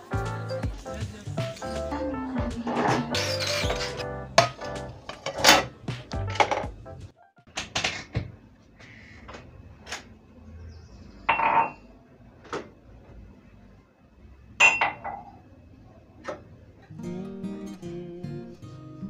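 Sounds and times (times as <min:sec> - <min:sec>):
dishes and cutlery clattering: 0:02.7 - 0:06.7.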